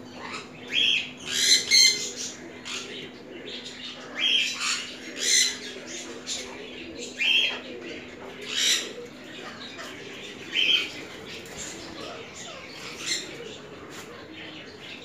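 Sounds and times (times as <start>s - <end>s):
parrots screeching: 0.2s - 2.8s.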